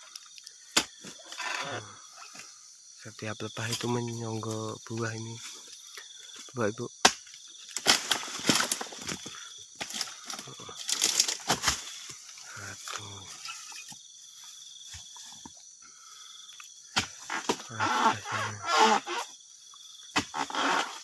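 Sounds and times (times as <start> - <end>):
insects trilling: 0.0 - 21.0
blade chopping fronds: 7.0 - 12.2.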